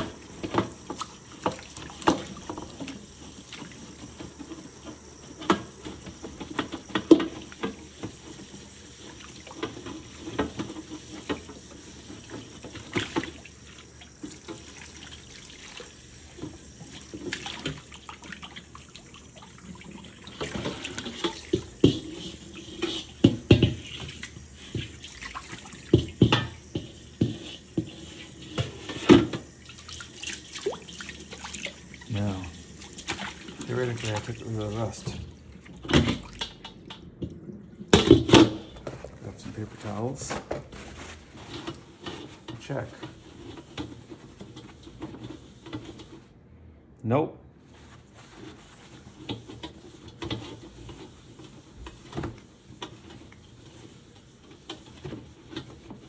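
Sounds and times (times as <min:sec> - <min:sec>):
sponge scrubbing wok: 0:00.0 - 0:35.6, 0:47.7 - 0:56.0
tap water running into wok: 0:00.0 - 0:39.2, 0:49.1 - 0:56.0.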